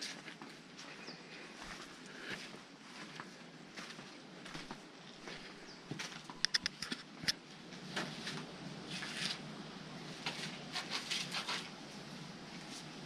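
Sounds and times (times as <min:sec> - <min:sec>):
footsteps crunching on gravel: 0:01.6 - 0:06.4.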